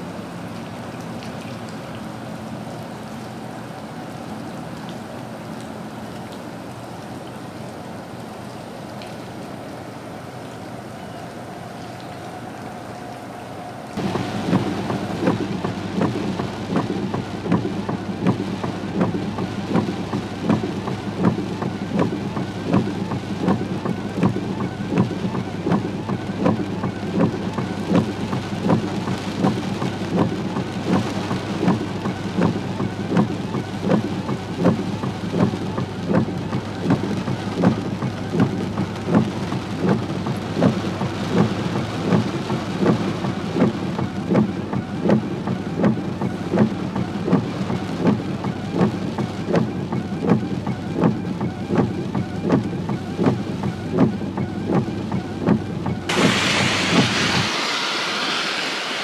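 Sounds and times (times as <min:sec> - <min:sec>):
louder rain hits: 0:00.0 - 0:59.0
rain on a vehicle: 0:00.0 - 0:59.0
vehicle humming: 0:00.0 - 0:59.0.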